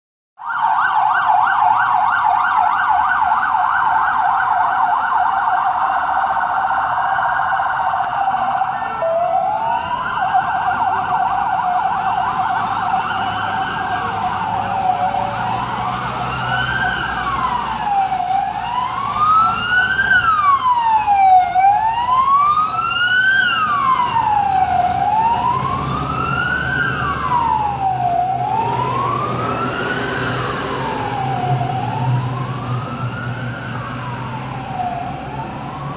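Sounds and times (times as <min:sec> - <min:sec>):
emergency vehicle sirens: 0:00.4 - 0:35.9.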